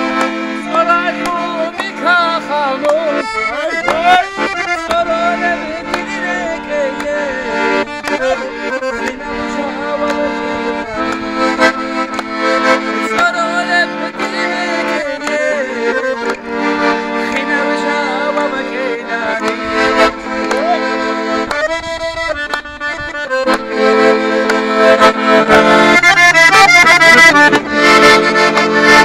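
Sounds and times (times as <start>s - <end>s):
button accordion folk tune: 0.0s - 29.0s
man singing: 0.5s - 12.0s, 12.8s - 16.4s, 17.1s - 21.1s.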